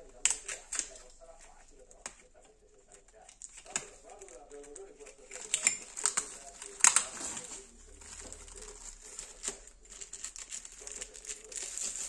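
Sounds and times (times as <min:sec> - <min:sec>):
plastic film crinkling and tearing: 0:00.0 - 0:12.0.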